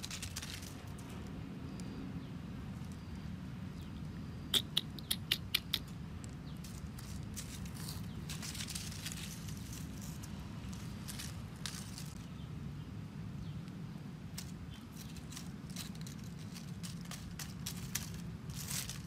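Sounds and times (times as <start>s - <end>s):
dry leaves crackling and rustling: 0.0s - 1.9s, 6.5s - 12.5s, 14.2s - 19.0s
low background hum: 0.0s - 19.0s.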